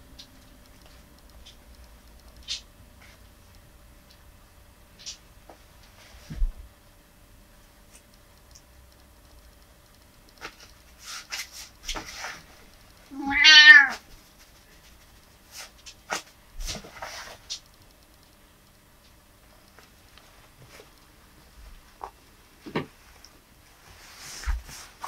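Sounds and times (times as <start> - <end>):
soft clicks and rustles: 0.0 - 4.3, 4.9 - 6.8, 7.5 - 13.2, 13.9 - 25.0
cat meowing: 13.1 - 14.0.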